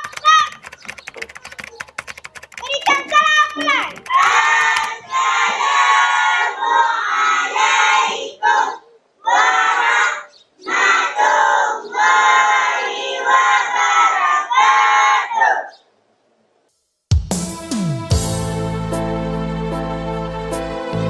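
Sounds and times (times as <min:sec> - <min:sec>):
voices singing together: 0:04.2 - 0:15.4.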